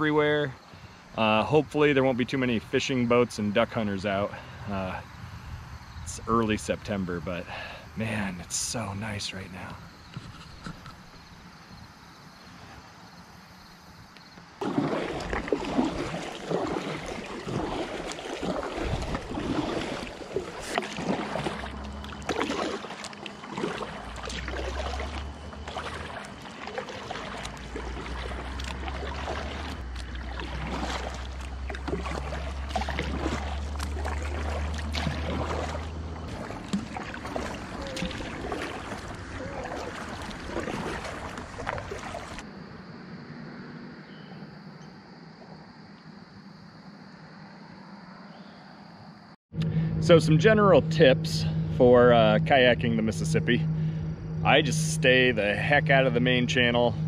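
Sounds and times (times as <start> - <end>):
water lapping at hull: 0.0 - 42.6, 49.6 - 57.0
paddle strokes splashing: 14.4 - 42.5.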